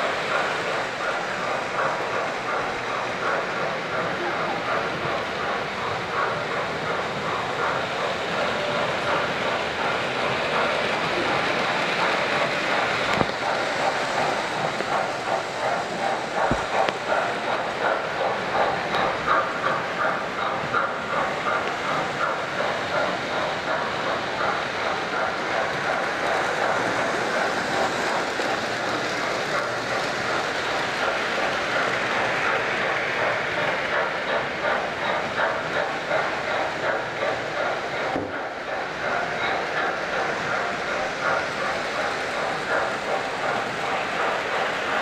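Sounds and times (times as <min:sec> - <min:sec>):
model trains running on rails: 0:00.0 - 0:45.0.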